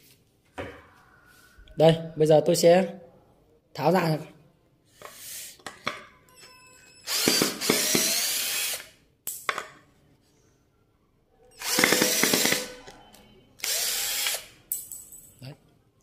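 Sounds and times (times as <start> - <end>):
cordless screwdriver running: 7.1 - 8.9, 11.6 - 12.6, 13.6 - 14.5.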